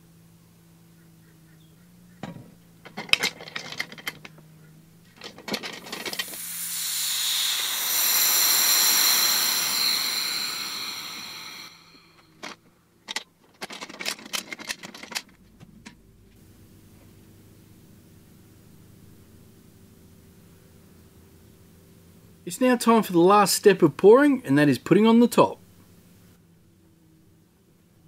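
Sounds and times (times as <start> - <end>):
compressed air hissing with whistle: 5.9 - 12.4.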